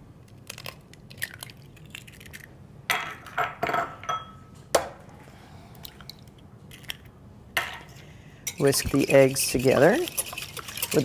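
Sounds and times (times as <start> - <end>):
eggs cracking on glass bowl: 0.4 - 3.3.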